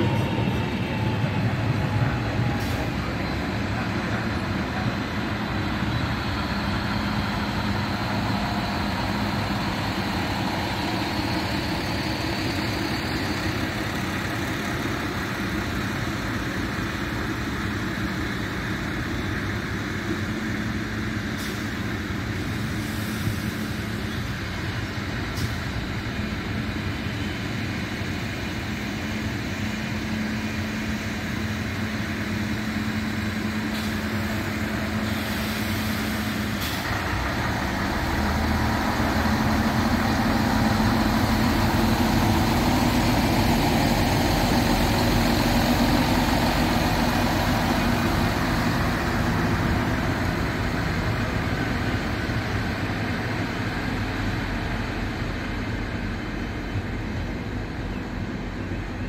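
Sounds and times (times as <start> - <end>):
diesel engines humming: 0.0 - 59.0
train wheels rumbling on rails: 0.0 - 59.0.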